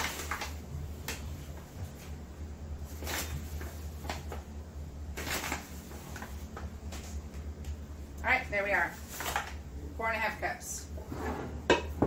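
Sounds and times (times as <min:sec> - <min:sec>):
paper bag rustling: 0:00.0 - 0:00.6, 0:02.8 - 0:04.4, 0:05.2 - 0:07.2, 0:08.9 - 0:09.6
steady low hum: 0:00.0 - 0:12.0.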